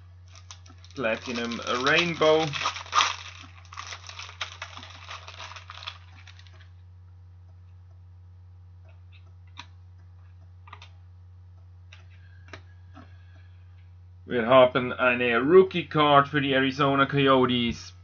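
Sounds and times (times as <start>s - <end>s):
steady low hum: 0.0s - 18.0s
cards crinkling: 0.2s - 6.7s.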